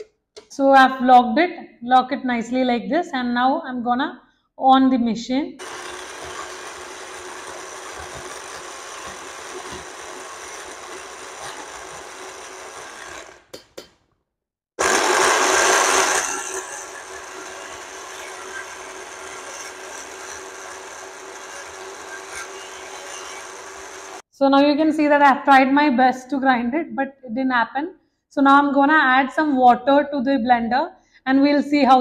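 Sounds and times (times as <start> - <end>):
blender running: 5.6 - 13.5, 14.8 - 24.3.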